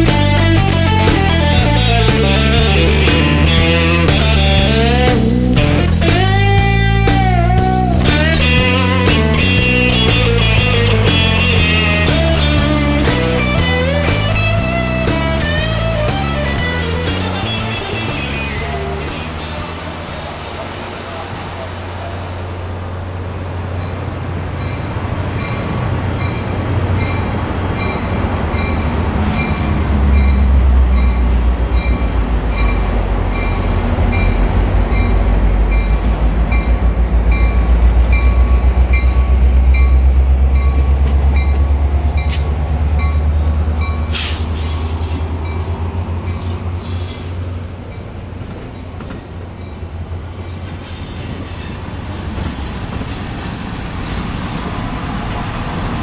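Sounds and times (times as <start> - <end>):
steam train rumbling: 0.0 - 56.0
sharp steam hisses: 15.1 - 23.7, 44.1 - 45.7, 46.4 - 47.6, 50.2 - 56.0
wheel squeal: 29.3 - 35.9.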